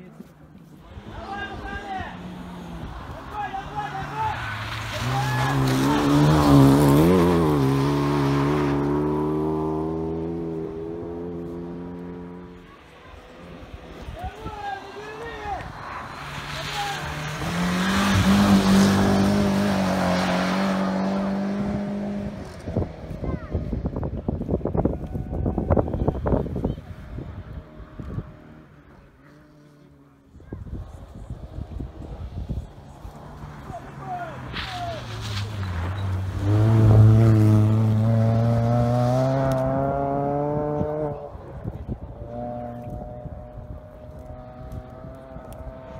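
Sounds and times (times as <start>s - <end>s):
rally car engine at high revs: 4.3s - 14.1s, 15.7s - 23.8s, 35.4s - 45.9s.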